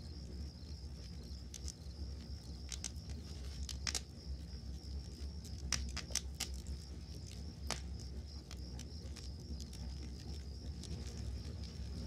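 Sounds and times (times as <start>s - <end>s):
crickets chirping: 0.0s - 12.0s
campfire crackling and popping: 0.2s - 12.0s.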